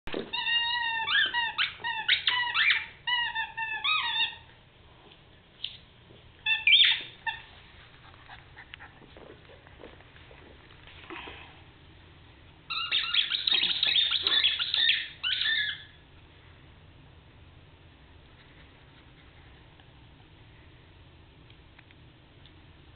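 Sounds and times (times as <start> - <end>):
squeaky dog toy squeaking: 0.2 - 4.5, 6.4 - 7.6, 12.7 - 16.0.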